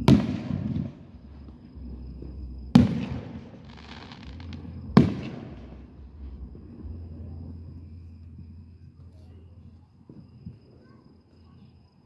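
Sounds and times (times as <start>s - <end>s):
rumbling echo: 0.0s - 8.8s.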